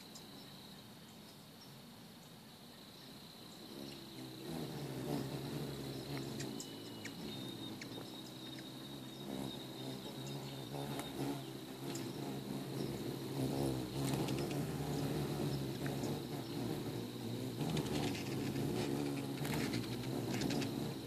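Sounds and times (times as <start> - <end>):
hummingbird wings humming: 0.0 - 21.0.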